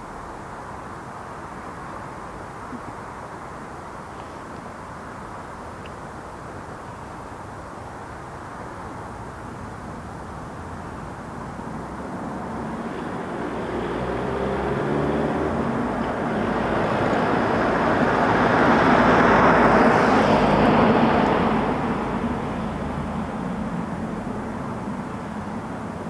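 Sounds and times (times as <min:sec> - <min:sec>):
vehicle passing by: 0:11.8 - 0:25.9.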